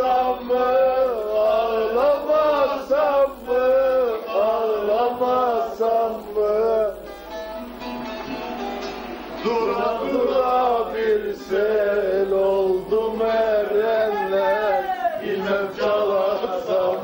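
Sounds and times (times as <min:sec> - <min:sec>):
man singing: 0:00.0 - 0:07.1, 0:09.4 - 0:17.0
long-necked lute plucked: 0:06.4 - 0:13.8.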